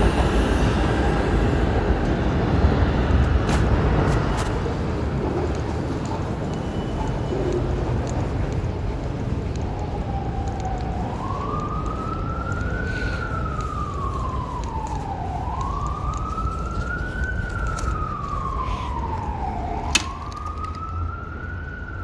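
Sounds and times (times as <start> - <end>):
siren wailing: 5.0 - 22.0.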